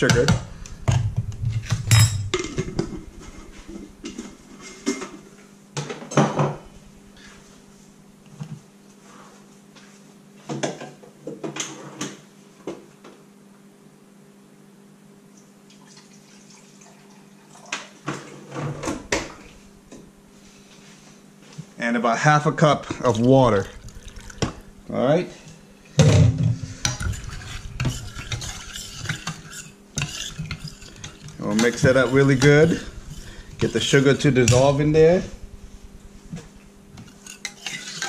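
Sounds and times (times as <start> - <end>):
steady low hum: 0.0 - 8.9, 18.6 - 38.0
dishes and utensils clinking: 1.8 - 3.0, 37.0 - 38.0.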